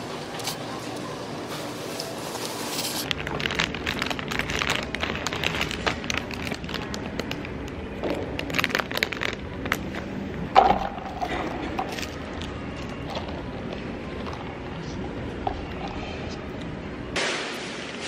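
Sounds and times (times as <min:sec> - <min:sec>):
plastic bag crinkling: 0:02.0 - 0:10.1.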